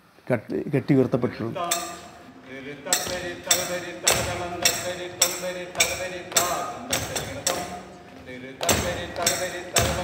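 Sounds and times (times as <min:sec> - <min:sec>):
ringing metallic percussion: 0:01.6 - 0:02.2, 0:02.9 - 0:07.9, 0:08.7 - 0:10.0.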